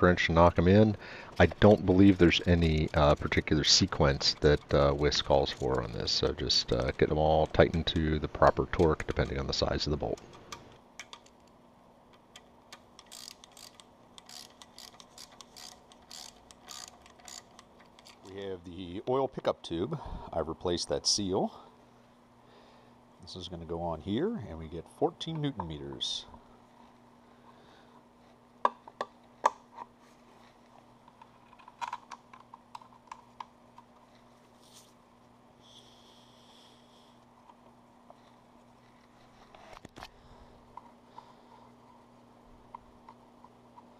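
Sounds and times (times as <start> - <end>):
ratcheting torque wrench clicking: 1.4 - 11.4, 12.2 - 18.3.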